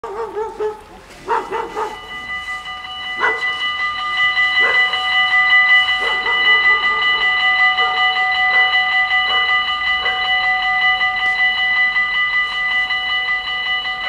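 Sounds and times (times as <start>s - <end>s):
dog barking: 0.0s - 2.1s, 3.2s - 3.6s, 4.6s - 4.9s, 6.0s - 10.2s
level crossing warning bells: 0.0s - 14.0s.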